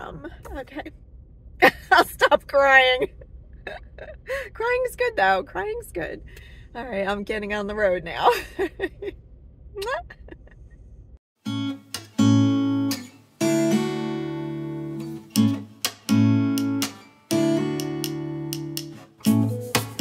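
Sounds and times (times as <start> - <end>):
acoustic guitar strumming chords: 11.4 - 20.0.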